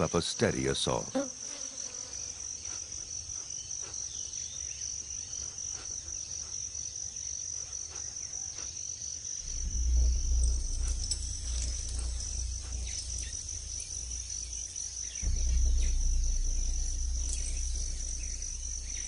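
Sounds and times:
jungle insects trilling: 0.0s - 19.0s
low rumble: 9.4s - 19.0s.

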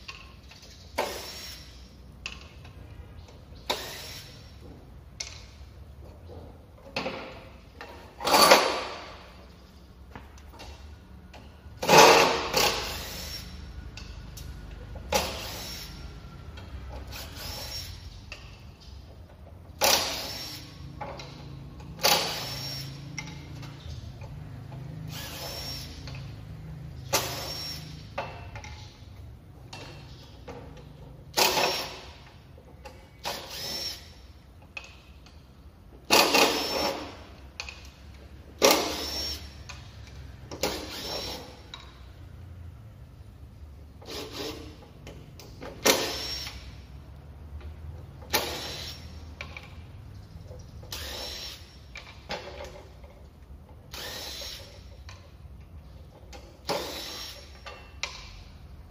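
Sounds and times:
impact driver driving screws: 8.2s - 9.2s, 22.0s - 23.3s, 25.1s - 26.2s, 31.3s - 32.2s, 33.2s - 34.9s, 36.0s - 37.8s, 38.6s - 39.8s, 40.5s - 41.8s, 45.7s - 46.7s, 53.9s - 55.0s, 56.6s - 58.2s.

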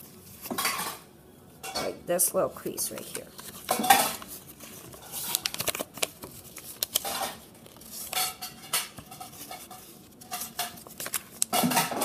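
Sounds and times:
paper rustling and crinkling: 2.6s - 12.0s.

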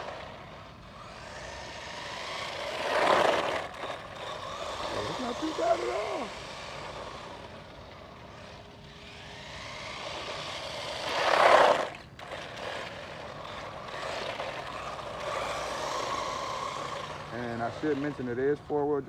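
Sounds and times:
tyre noise on asphalt: 0.0s - 7.2s
electric motor and gear whine: 0.0s - 19.0s.

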